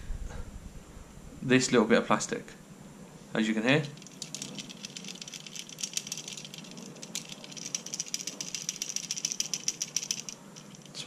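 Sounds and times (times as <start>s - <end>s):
plastic flap rattling: 3.9s - 11.0s.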